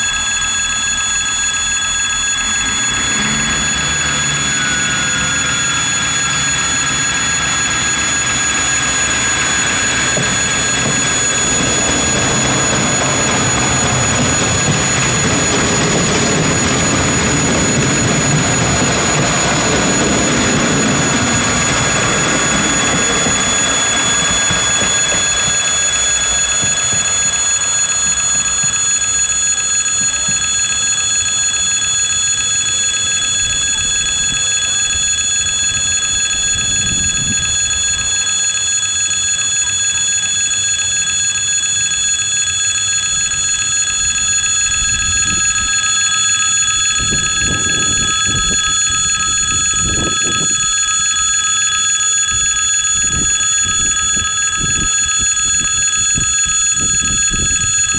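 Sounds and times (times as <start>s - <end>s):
diesel railcar rumble: 1.8s - 27.8s
level crossing bell ringing: 2.3s - 19.8s
short low rumbles: 2.3s - 26.9s.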